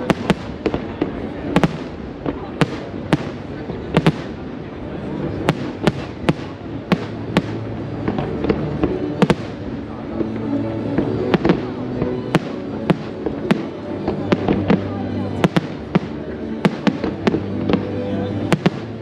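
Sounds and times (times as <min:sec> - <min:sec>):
background music: 0:04.0 - 0:19.0.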